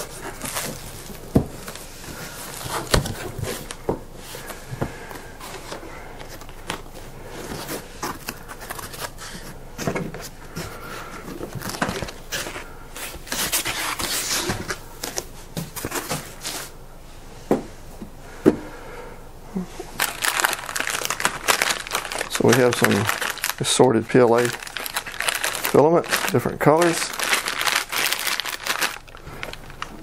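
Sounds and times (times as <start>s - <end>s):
plastic bags crinkling: 0.0s - 3.8s, 4.4s - 9.6s, 11.2s - 15.2s, 19.9s - 30.0s
foam sheet rustling and scraping: 10.1s - 16.7s, 19.9s - 30.0s.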